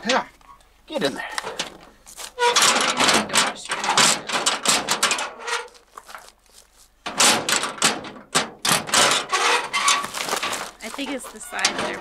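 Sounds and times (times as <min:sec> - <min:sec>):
trash bin lid clattering: 0:07.1 - 0:12.0.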